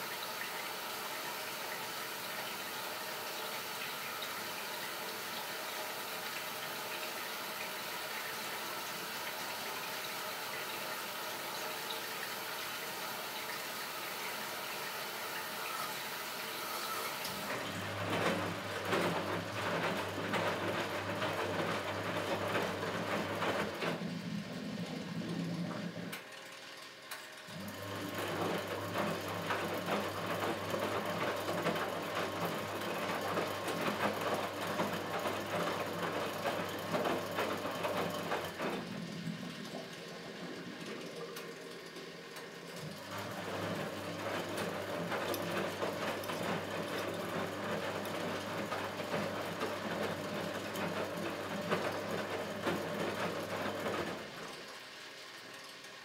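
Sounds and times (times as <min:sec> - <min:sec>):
water hissing into drum: 0:00.0 - 0:17.6, 0:37.6 - 0:45.0
washing machine motor hum: 0:00.0 - 0:56.0
wet laundry sloshing: 0:11.2 - 0:26.5, 0:27.6 - 0:54.7.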